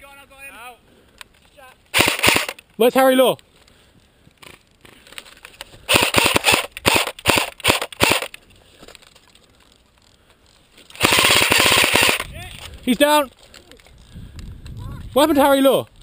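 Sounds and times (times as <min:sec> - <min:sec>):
airsoft rifle firing: 0:01.9 - 0:02.6, 0:05.9 - 0:08.4, 0:11.0 - 0:12.3.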